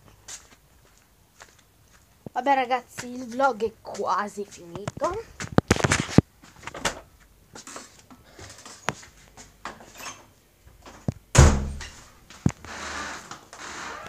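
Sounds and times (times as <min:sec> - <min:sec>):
heavy thump: 0:11.3 - 0:12.1.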